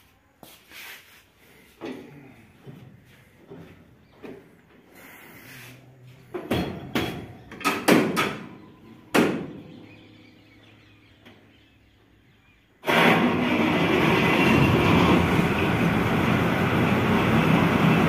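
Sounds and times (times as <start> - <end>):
metallic bangs on steel ladder: 6.5 - 8.5.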